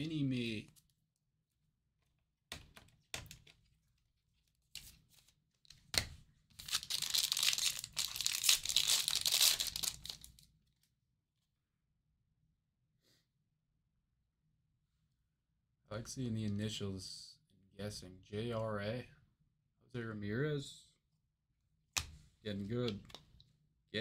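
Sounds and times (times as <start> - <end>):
wrapper crinkling and tearing: 6.6 - 10.4.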